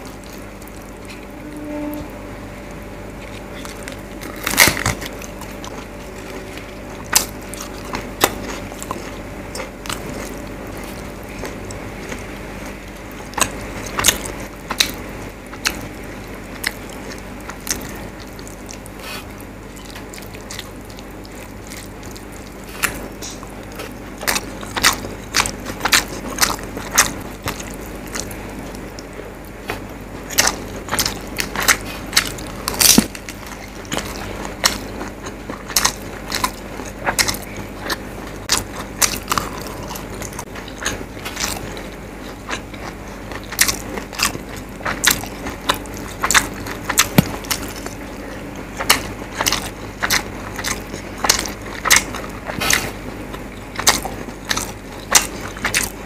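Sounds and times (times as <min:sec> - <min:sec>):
chewing with mouth clicks: 0:00.0 - 0:01.3, 0:02.7 - 0:56.0
steady low hum: 0:00.0 - 0:56.0
crisp crunch of bite: 0:29.7 - 0:56.0.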